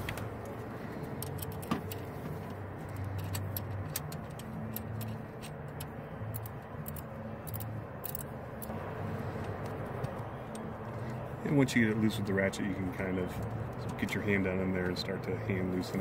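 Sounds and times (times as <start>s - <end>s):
ratcheting wrench clicking: 3.0s - 8.7s.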